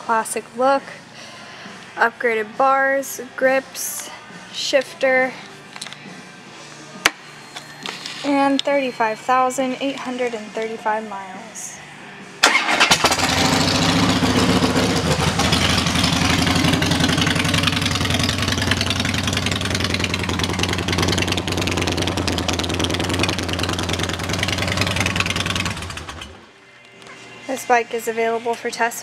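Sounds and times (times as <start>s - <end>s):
motorcycle engine idling: 12.9s - 26.4s.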